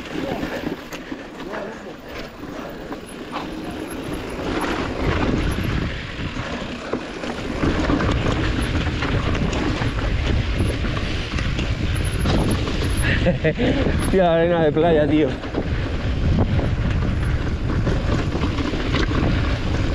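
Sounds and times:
bike knocking and rattling: 0:00.0 - 0:19.9
bike tyres on rough rock: 0:00.0 - 0:19.9.

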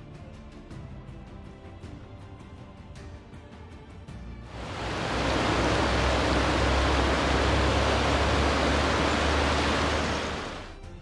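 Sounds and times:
river rapids rushing: 0:04.5 - 0:10.7.

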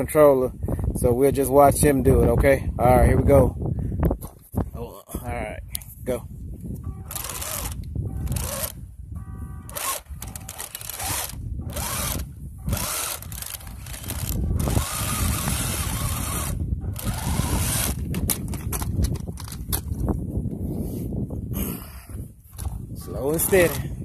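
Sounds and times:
toy tank motors and tracks: 0:07.1 - 0:08.8, 0:09.6 - 0:19.6, 0:23.2 - 0:23.8.

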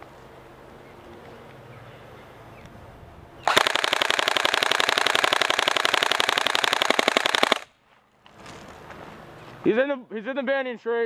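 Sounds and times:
airsoft rifle firing full-auto: 0:03.4 - 0:07.7.

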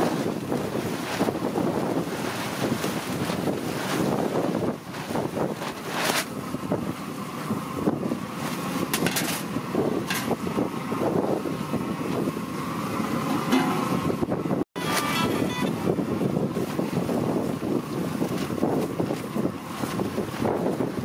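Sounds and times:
wind on microphone: 0:00.0 - 0:21.0
metal pot lids clattering: 0:13.3 - 0:14.0.

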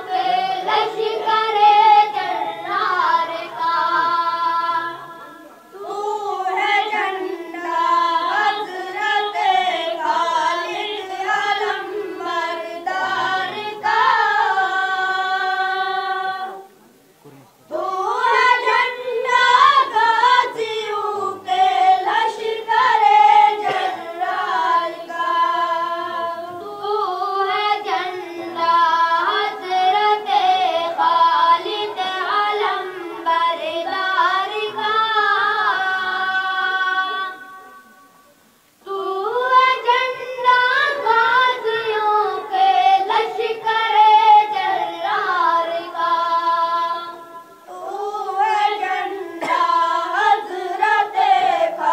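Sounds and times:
boys singing together: 0:00.0 - 0:16.7, 0:17.7 - 0:37.7, 0:38.8 - 0:51.9.

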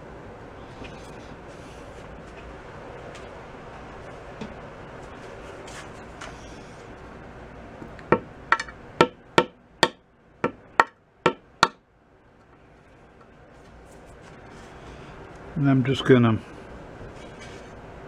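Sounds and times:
sharp taps on wooden dowel: 0:08.1 - 0:11.8.

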